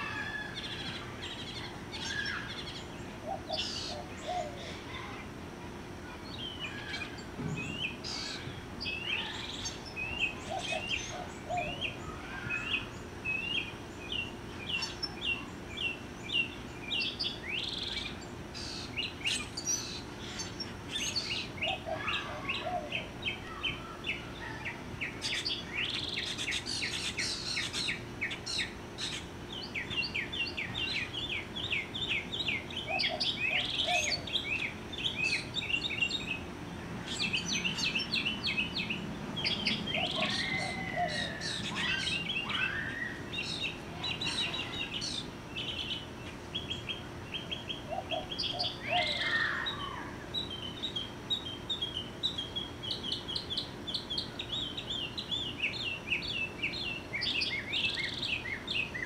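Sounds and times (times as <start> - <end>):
mockingbird singing: 0.0 - 5.3, 6.0 - 59.0.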